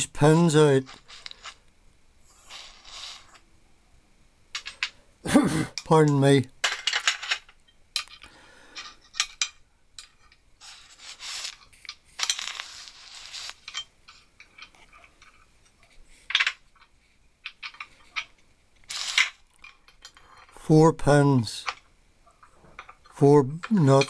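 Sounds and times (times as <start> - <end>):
metal scrapes: 0.8 - 1.6, 10.6 - 15.4.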